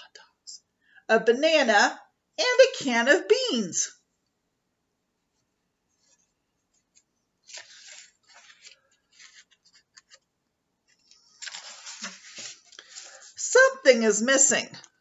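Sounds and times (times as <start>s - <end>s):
book pages rustling: 5.3s - 13.4s.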